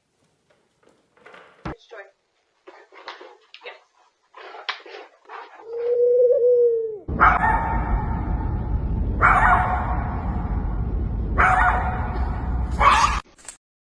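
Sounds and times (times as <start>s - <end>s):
dog whining: 5.3s - 7.1s
steady low rumble: 7.1s - 13.0s.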